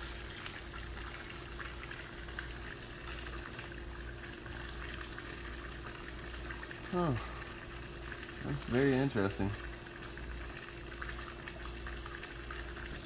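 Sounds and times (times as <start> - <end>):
faint sizzling hiss: 0.0 - 10.6
microwave oven humming: 3.6 - 13.0.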